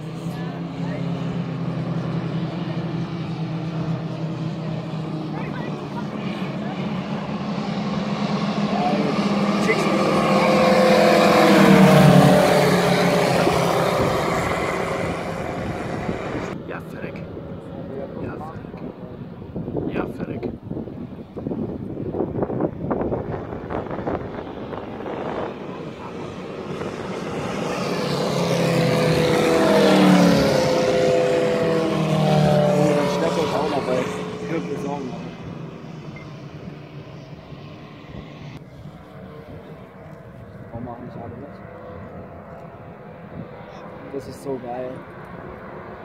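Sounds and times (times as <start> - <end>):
model aircraft engines droning: 0.0 - 46.0.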